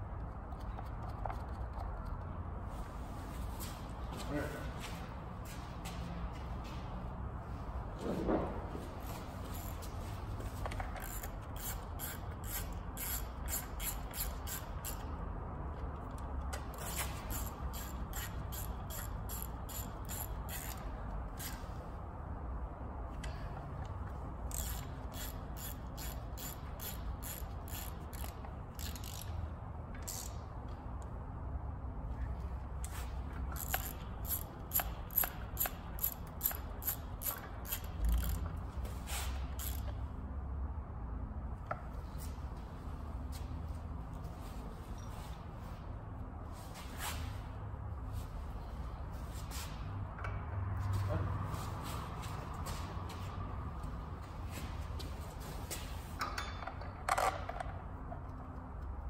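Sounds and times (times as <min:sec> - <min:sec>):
hand ratchet clicking: 0:09.5 - 0:09.9, 0:10.7 - 0:15.2, 0:16.0 - 0:21.6, 0:24.4 - 0:29.4, 0:30.0 - 0:30.4, 0:33.4 - 0:38.6, 0:39.4 - 0:40.0.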